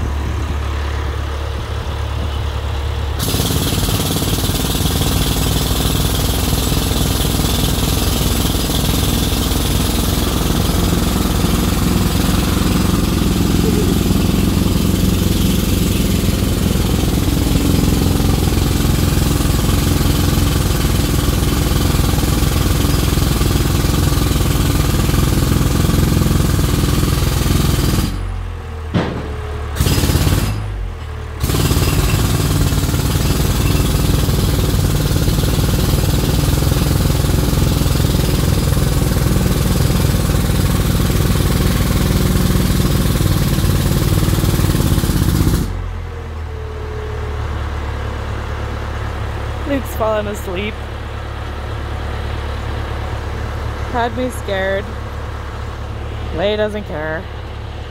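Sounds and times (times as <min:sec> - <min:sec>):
jackhammer hammering: 0:03.2 - 0:45.9.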